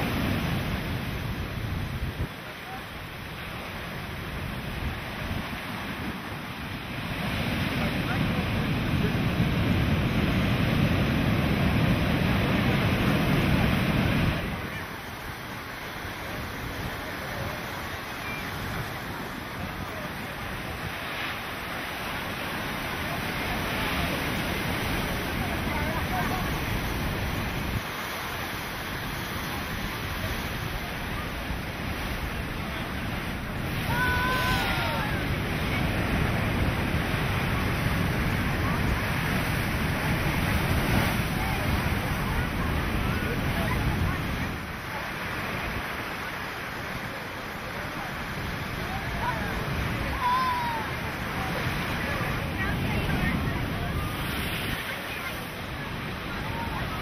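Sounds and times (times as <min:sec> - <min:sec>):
heavy surf breaking: 0:00.0 - 0:57.0
strong wind buffeting microphone: 0:03.4 - 0:46.9.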